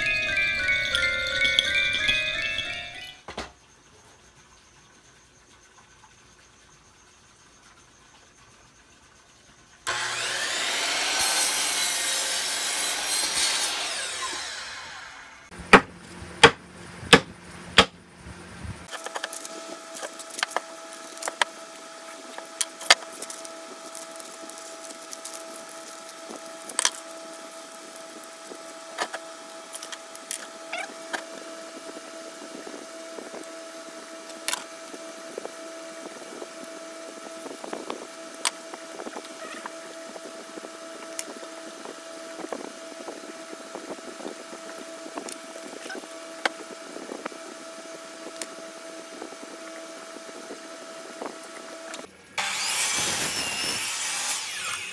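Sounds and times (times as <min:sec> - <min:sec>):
steady hum: 0:09.9 - 0:52.4.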